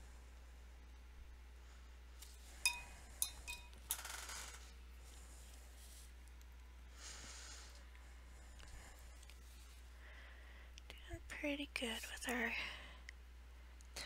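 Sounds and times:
paintbrush clinking against jar: 2.6s - 3.9s.

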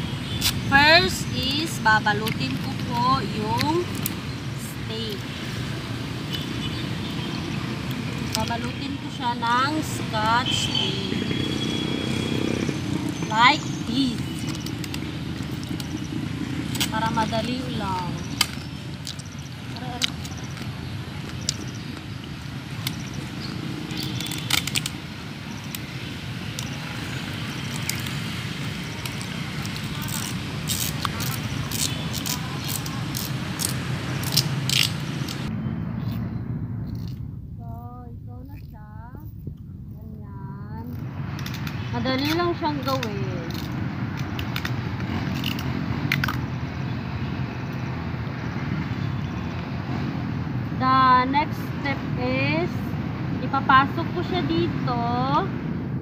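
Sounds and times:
adhesive tape crackling: 0.3s - 4.4s, 13.5s - 36.2s, 36.8s - 37.4s, 40.8s - 46.5s
low outdoor rumble: 12.2s - 48.5s
low rumble: 35.4s - 42.0s.

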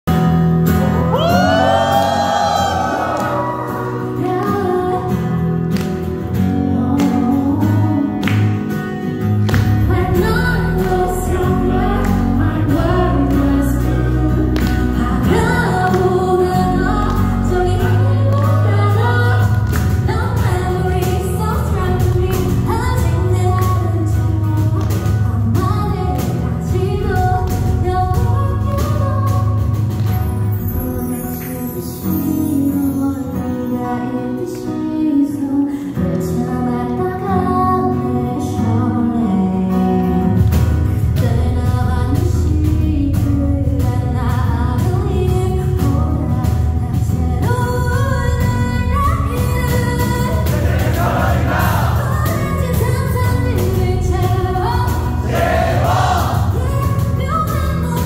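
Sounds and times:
woman singing into a microphone: 1.1s - 8.8s, 9.6s - 51.0s, 51.6s - 55.3s, 56.3s - 58.0s
instrumental backing with steady beat: 44.8s - 58.0s.

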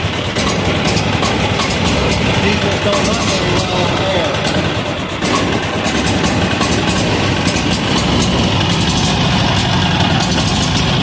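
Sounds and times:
diesel engine running: 0.0s - 11.0s.

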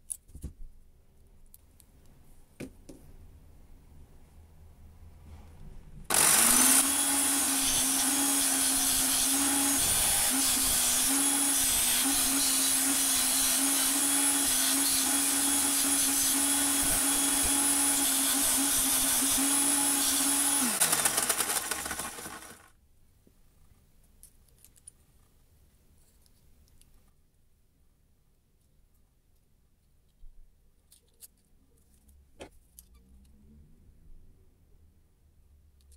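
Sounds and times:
disc sander motor hum: 6.1s - 22.7s.

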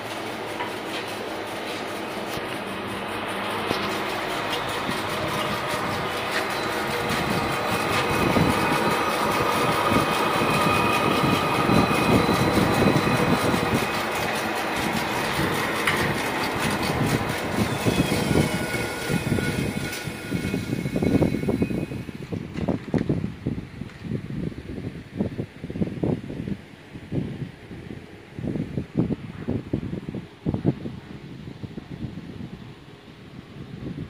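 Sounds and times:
thin high cutting tones: 0.0s - 22.2s
metal lathe rumble: 0.0s - 22.9s.

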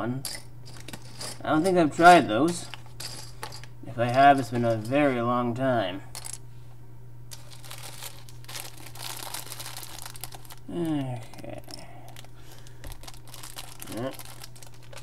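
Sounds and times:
falling hum: 0.0s - 15.0s
plastic bag crinkling: 7.3s - 15.0s.

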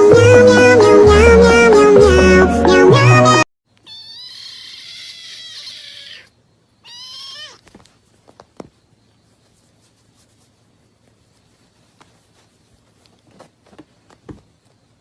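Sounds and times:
kitten meowing: 3.8s - 7.6s.

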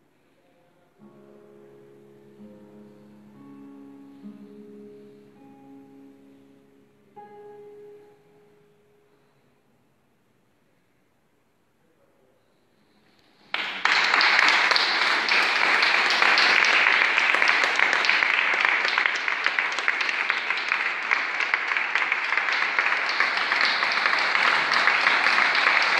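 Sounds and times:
audience applauding: 13.5s - 25.9s.

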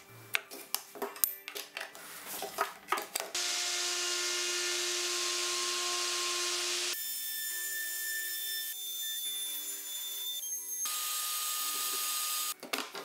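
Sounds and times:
router motor whine: 3.4s - 7.0s, 10.9s - 12.5s
router cutting wood: 3.4s - 12.6s.

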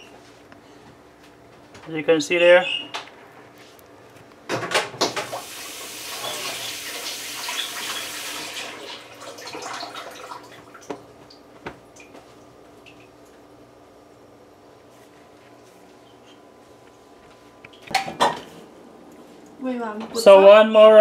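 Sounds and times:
tap water running into sink: 5.0s - 11.0s.

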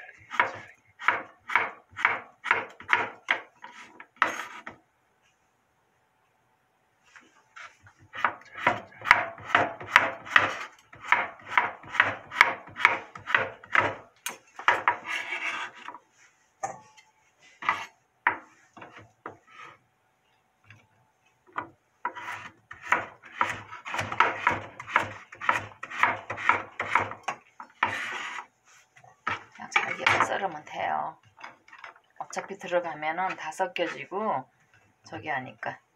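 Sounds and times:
knife chopping on wooden board: 0.3s - 3.5s, 8.2s - 14.0s, 22.1s - 28.2s.

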